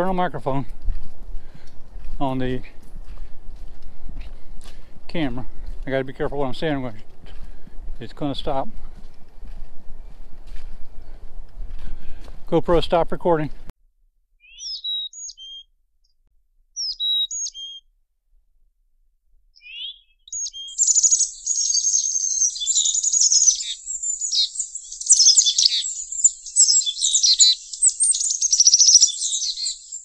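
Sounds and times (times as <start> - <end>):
songbird singing: 14.4 - 15.7, 16.8 - 17.8, 19.6 - 30.0.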